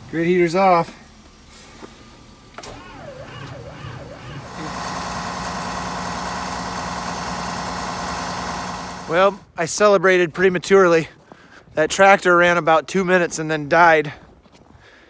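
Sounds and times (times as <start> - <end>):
diesel engine cranking and starting: 0.0 - 9.6.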